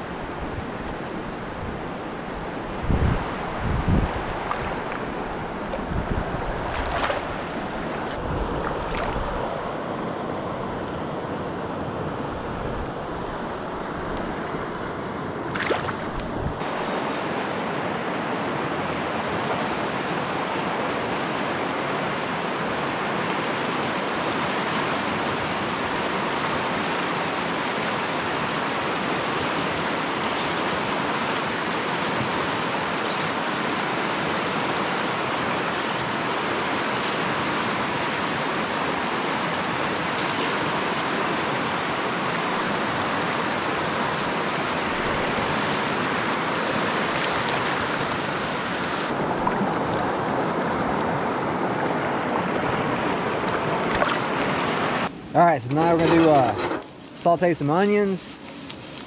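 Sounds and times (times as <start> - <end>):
stream rushing over rocks: 0.0 - 11.3, 15.5 - 55.1
wind buffeting microphone: 0.2 - 9.7, 16.0 - 16.7.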